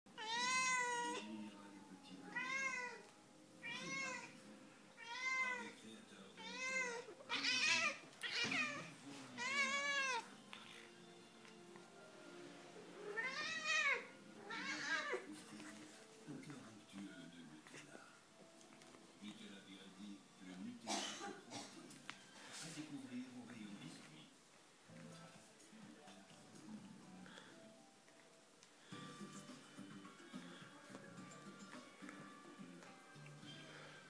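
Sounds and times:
cat meowing: 0.2 - 1.2, 2.3 - 4.3, 5.0 - 5.8, 6.4 - 10.8, 13.0 - 15.3.

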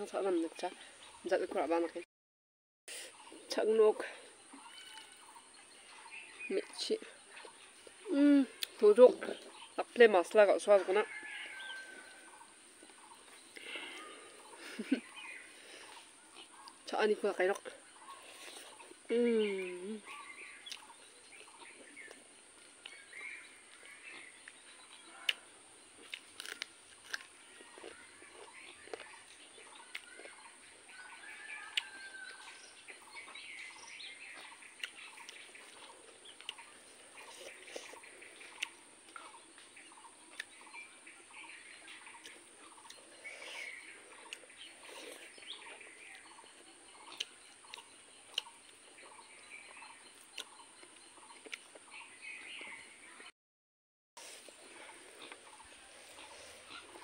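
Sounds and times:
birds chirping: 2.9 - 53.3, 54.2 - 57.0
chewing smacks: 34.4 - 39.4, 47.0 - 48.8, 50.3 - 51.9.

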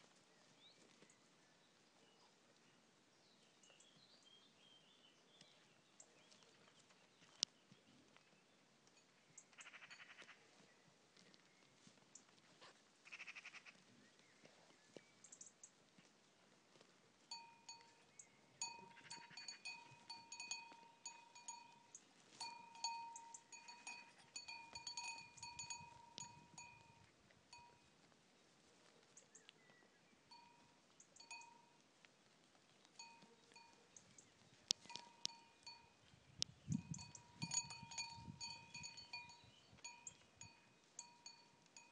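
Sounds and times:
goat bell clanking: 17.3 - 27.8, 30.3 - 31.8, 33.0 - 34.0, 34.8 - 36.0, 36.8 - 41.9.

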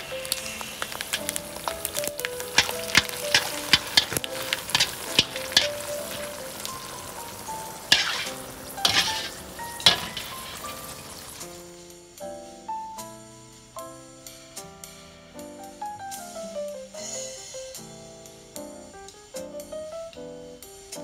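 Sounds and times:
skimmer scraping against wok: 0.0 - 11.6
chilies sizzling in hot oil: 0.0 - 13.0.

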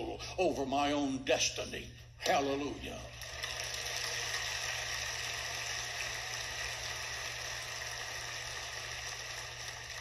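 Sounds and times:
steady low hum: 0.0 - 3.2
crowd applauding: 3.1 - 10.0.

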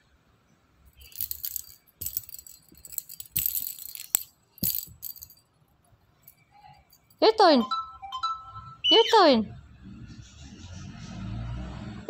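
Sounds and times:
toy ball bell rattling: 1.0 - 5.5.

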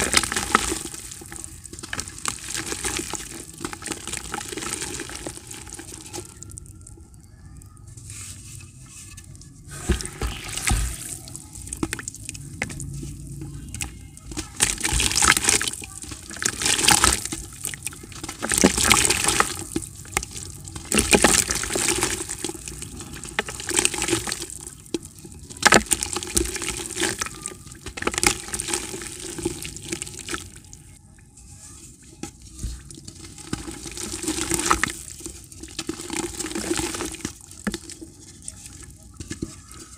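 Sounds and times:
dirt crushed by hand: 0.0 - 6.5, 13.7 - 30.6.

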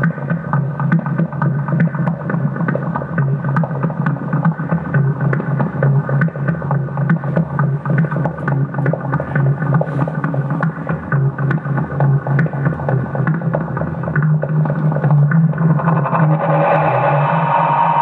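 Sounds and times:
low drone: 13.8 - 18.0
sustained tones: 15.0 - 18.0.

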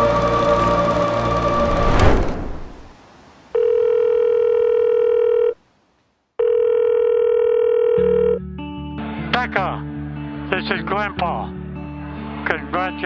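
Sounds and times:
background music: 0.0 - 2.3, 7.9 - 13.0
telephone ringback tone: 3.5 - 5.6, 6.4 - 8.5.

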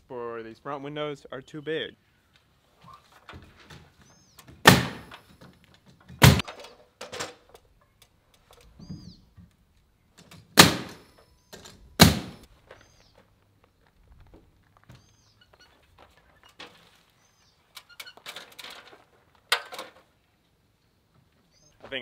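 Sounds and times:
nail gun shots into wood: 4.6 - 5.2, 6.2 - 6.5, 10.5 - 11.1, 12.0 - 12.5.

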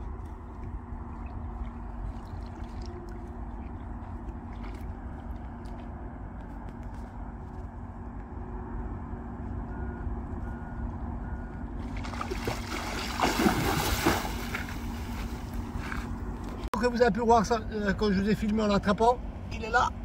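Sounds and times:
low steady rumble: 0.0 - 20.0
fish splashing in water: 1.2 - 3.5, 11.8 - 15.5.

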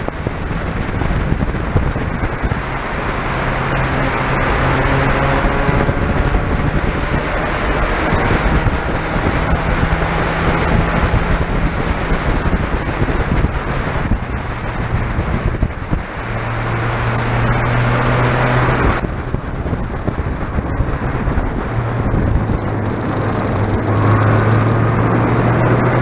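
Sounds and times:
race car engine under throttle: 0.0 - 26.0
wind rush: 0.0 - 26.0.

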